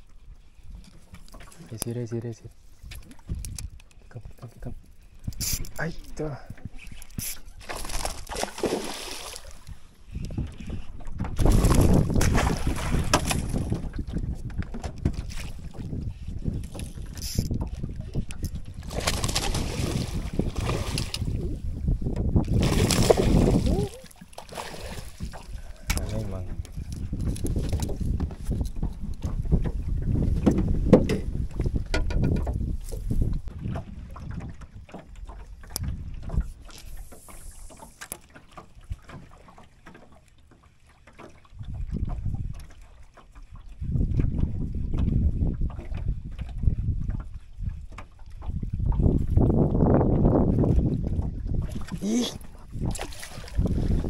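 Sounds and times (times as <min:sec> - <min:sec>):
water lapping against hull: 0:00.0 - 0:54.0
wind buffeting microphone: 0:02.8 - 0:08.3, 0:09.3 - 0:24.1, 0:24.7 - 0:37.8, 0:41.5 - 0:42.8, 0:43.4 - 0:54.0
fish splashing at surface: 0:07.2 - 0:09.6, 0:22.6 - 0:25.2
sharp knocks: 0:31.9 - 0:32.6.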